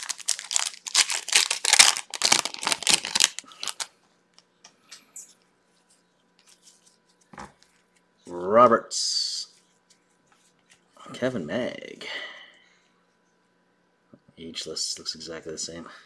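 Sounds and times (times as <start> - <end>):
foil wrapper crinkling and tearing: 0.0 - 3.9.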